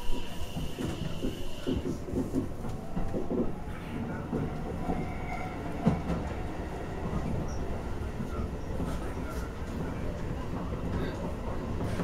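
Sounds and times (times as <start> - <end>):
train wheels rumbling on rails: 0.0 - 12.0
clacks over rail joints: 0.5 - 3.6.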